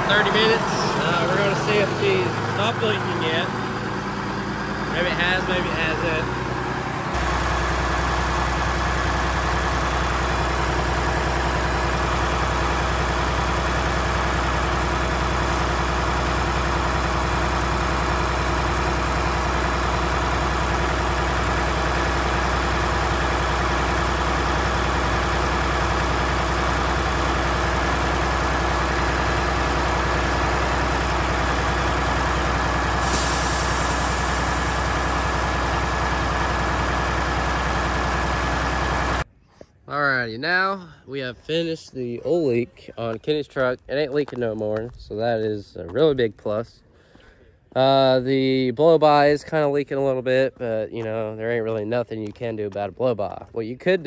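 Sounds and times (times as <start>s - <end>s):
truck engine idling: 0.0s - 39.3s.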